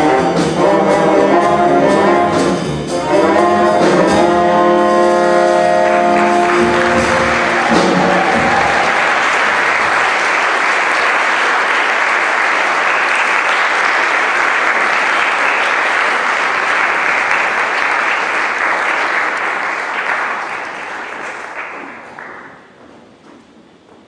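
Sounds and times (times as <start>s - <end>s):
audience applauding: 5.2s - 22.8s.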